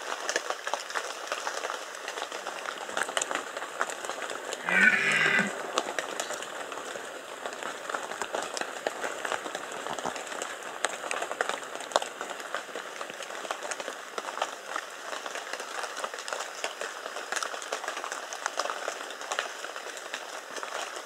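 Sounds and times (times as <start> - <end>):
deer stag roaring: 4.6 - 5.6.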